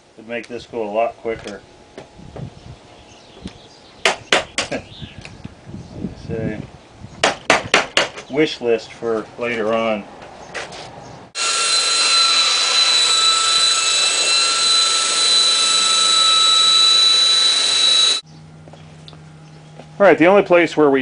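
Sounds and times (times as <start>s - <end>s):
electric belt sander on wood: 11.4s - 18.2s.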